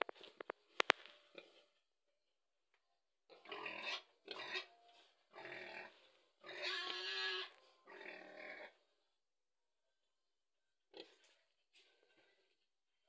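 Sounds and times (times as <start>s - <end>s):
pig grunting: 3.3s - 8.8s.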